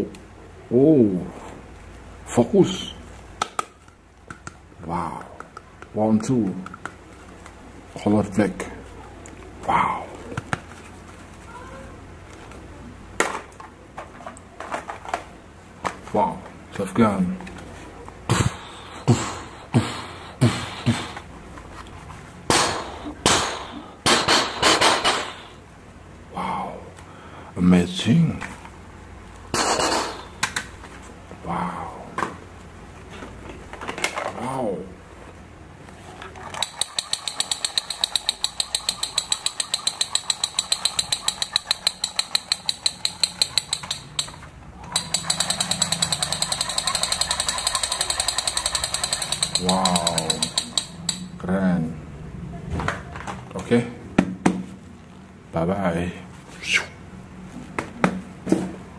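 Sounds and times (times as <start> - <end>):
toy rifle rattling clicks: 36.4 - 51.3.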